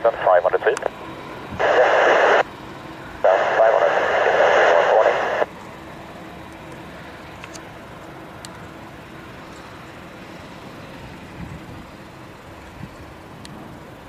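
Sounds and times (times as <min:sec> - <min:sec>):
distant jet engines taxiing: 0:00.0 - 0:14.0.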